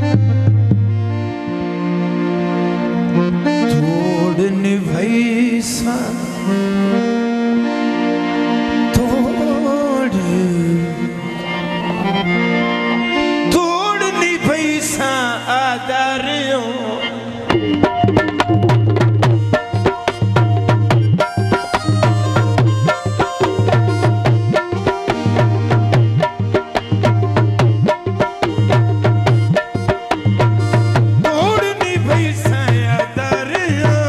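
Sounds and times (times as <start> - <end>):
harmonium playing chords: 0.0 - 34.0
man's wordless vocals: 3.6 - 7.0, 8.9 - 11.4, 13.4 - 17.6, 31.1 - 34.0.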